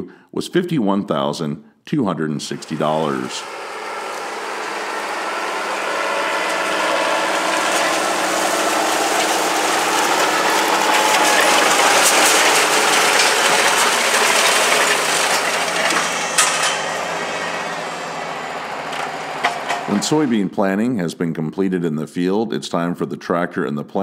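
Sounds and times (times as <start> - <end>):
diesel tractor engine running: 2.5 - 20.5
planter clattering: 2.6 - 20.5.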